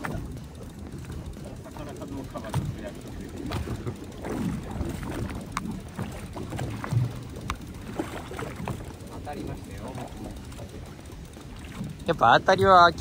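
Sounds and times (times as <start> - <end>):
low knocking on boat: 0.0 - 13.0
water and wind against hull: 0.0 - 13.0.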